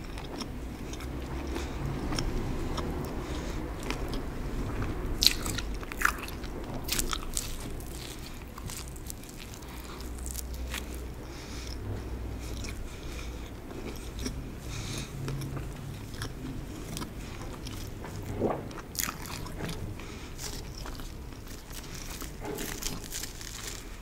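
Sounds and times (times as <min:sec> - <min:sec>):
chewing crunchy pizza crust: 0:00.0 - 0:24.0.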